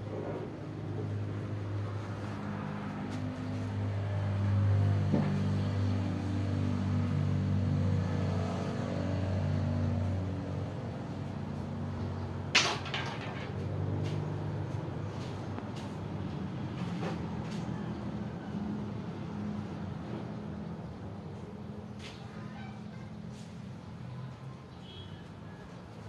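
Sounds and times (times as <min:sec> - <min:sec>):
low engine-like hum: 0:00.0 - 0:12.6, 0:13.5 - 0:26.0
sharp clatter: 0:12.5 - 0:13.7.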